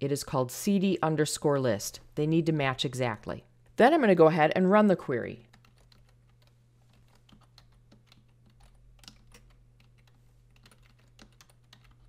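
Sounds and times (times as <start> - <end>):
low steady hum: 0.0 - 12.0
typing on a computer keyboard: 5.5 - 12.0.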